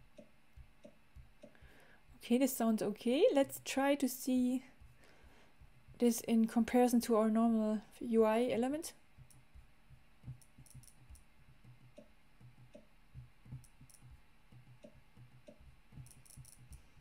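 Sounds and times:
picker wheel ticking: 10.3 - 16.8.

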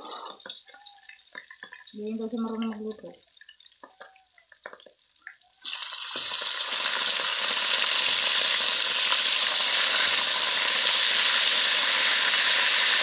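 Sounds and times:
beef sizzling loudly in wok: 3.2 - 13.0.

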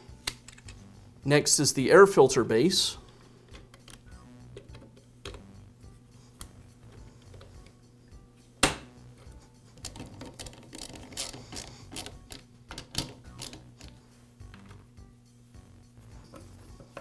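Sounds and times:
plastic parts clicking and knocking: 3.5 - 5.5, 9.8 - 13.9
loud sharp snap: 8.6 - 8.9
nut driver clicks and rattles: 9.8 - 13.9.

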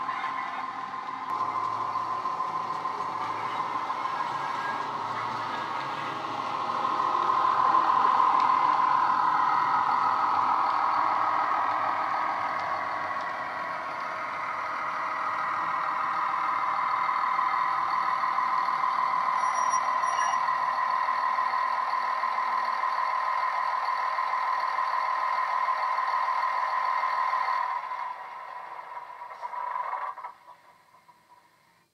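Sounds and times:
sampled diesel train engine: 0.0 - 31.9
faint high double tone: 19.4 - 20.4.

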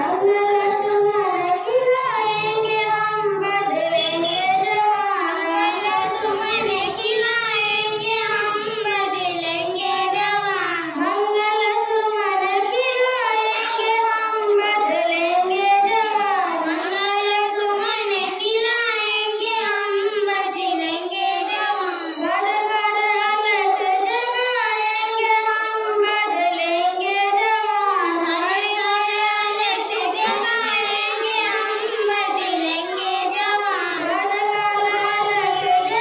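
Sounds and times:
girls singing into microphones: 0.0 - 36.0.

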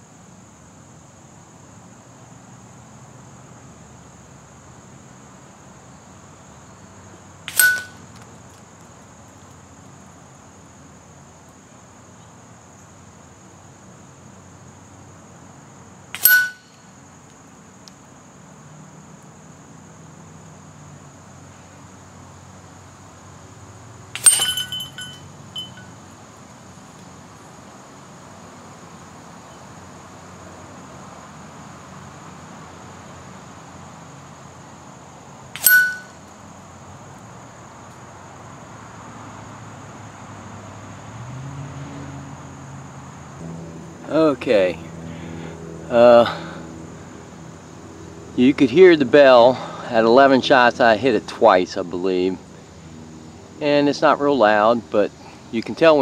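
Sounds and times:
high insect buzz: 0.0 - 55.6
pellet hits on steel target: 7.5 - 8.0, 16.2 - 16.7, 24.2 - 25.8, 35.6 - 36.1
small metallic clinks: 7.5 - 8.0, 16.2 - 16.8, 24.2 - 26.0, 35.6 - 36.2.

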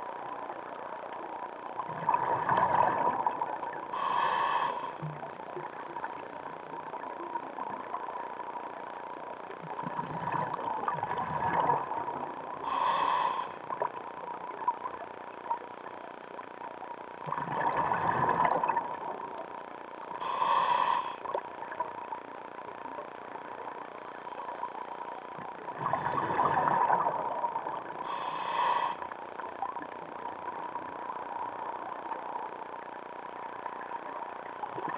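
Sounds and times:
bubbling regulator exhale: 1.9 - 5.0, 9.8 - 13.6, 17.2 - 19.1, 25.7 - 29.0
hissing regulator inhale: 3.9 - 5.1, 12.6 - 13.7, 20.2 - 21.4, 28.0 - 29.2.

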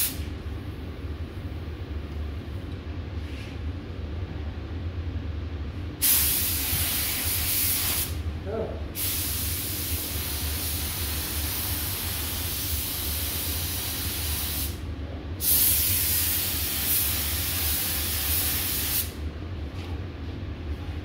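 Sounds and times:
ventilation hum: 0.0 - 21.0
spray gun hissing: 6.0 - 8.1, 9.0 - 14.8, 15.4 - 19.2.

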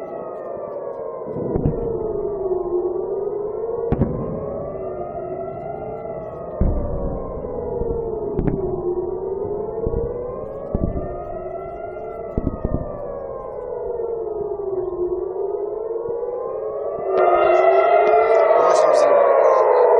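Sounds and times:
air-raid siren wailing: 0.0 - 19.9
dull low thumps: 1.4 - 4.9, 6.3 - 16.4.

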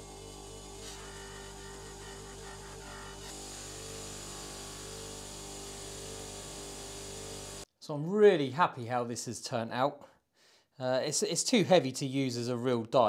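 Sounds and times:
bench polisher motor hum: 0.0 - 7.6.

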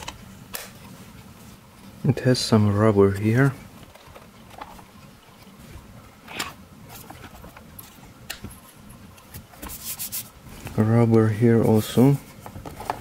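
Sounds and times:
hands rubbing plastic keyboard: 6.3 - 13.0.

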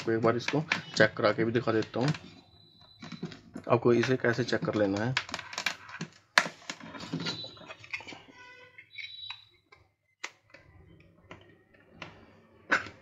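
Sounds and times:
plastic clicks: 0.0 - 2.4.

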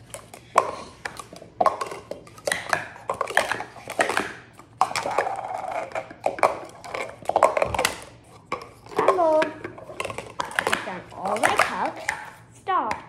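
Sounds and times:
plastic cups clacking: 0.0 - 13.0.

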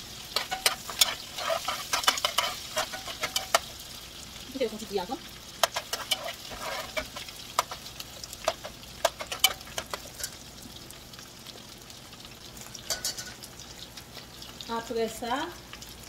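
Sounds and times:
oil crackling and popping: 0.0 - 16.0
sausages sizzling in hot oil: 0.0 - 16.0.

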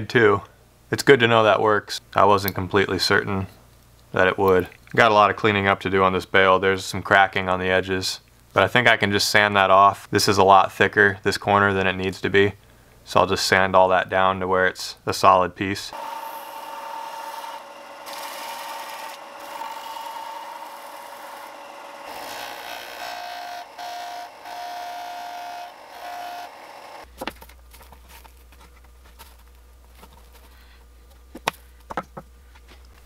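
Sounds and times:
sander motor humming: 15.9 - 27.1
wood grinding on sander: 15.9 - 27.1.

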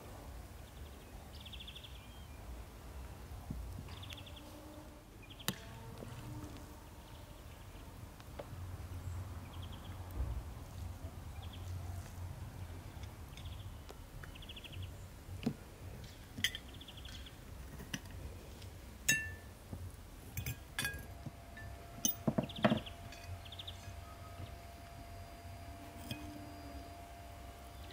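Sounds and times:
cutlery clinking on plates: 19.1 - 19.4, 20.4 - 21.1.

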